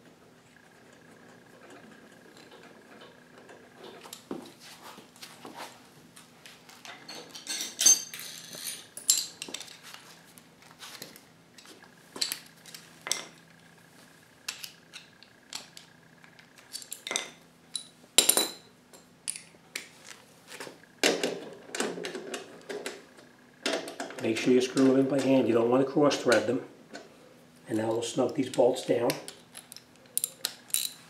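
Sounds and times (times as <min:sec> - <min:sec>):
faint steady hum: 0:00.0 - 0:31.0
metal bolts clinking: 0:06.9 - 0:09.8, 0:27.8 - 0:31.0
handling rattle: 0:28.4 - 0:31.0.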